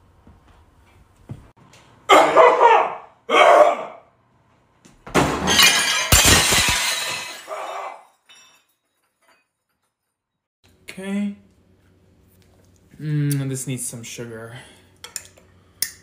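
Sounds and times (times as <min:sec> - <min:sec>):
glass and crockery shattering: 0:05.2 - 0:10.0.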